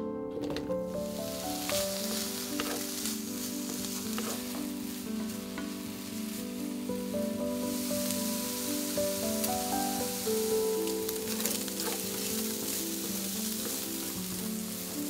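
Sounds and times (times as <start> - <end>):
soft background music: 0.0 - 15.0
wooden spatula scraping and tapping: 0.4 - 6.7, 7.6 - 15.0
ham sizzling in a frying pan: 0.9 - 15.0.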